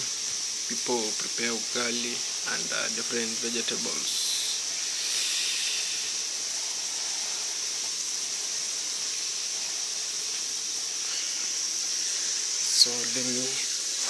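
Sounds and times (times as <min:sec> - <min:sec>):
night insects trilling: 0:00.0 - 0:14.0.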